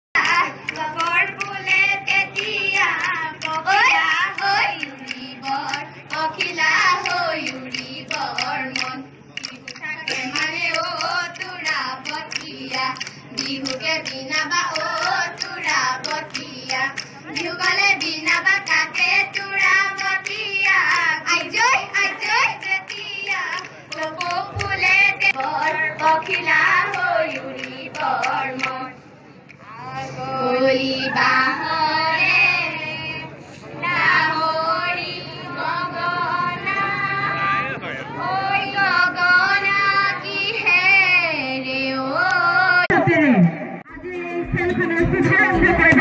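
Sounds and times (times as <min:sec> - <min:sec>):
hand claps: 0:00.2 - 0:01.8, 0:02.8 - 0:21.1, 0:22.4 - 0:28.8
girls singing through loudspeaker: 0:00.2 - 0:46.0.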